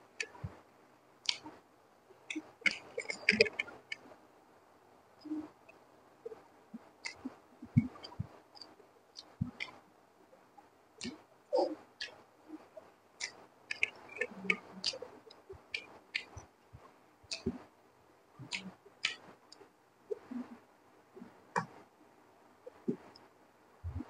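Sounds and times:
wet chewing: 2.3s - 4.0s, 13.2s - 16.4s.

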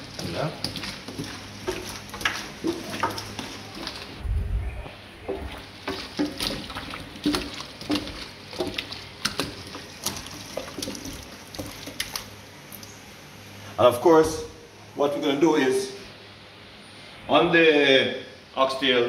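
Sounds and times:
hands squishing raw chicken: 0.0s - 4.2s, 5.2s - 12.9s.

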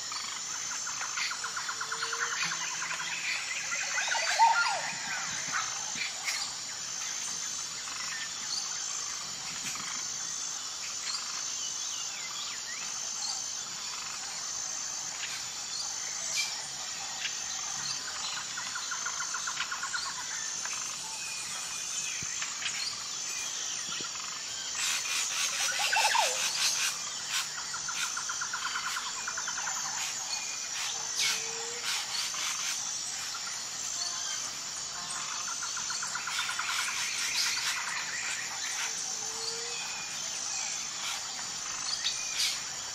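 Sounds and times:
insect chorus: 0.0s - 42.9s
birds chirping and calling: 1.2s - 6.6s, 24.1s - 33.4s.

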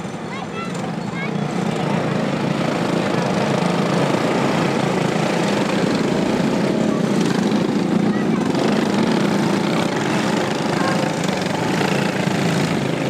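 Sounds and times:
go-kart engines racing: 0.0s - 13.0s.

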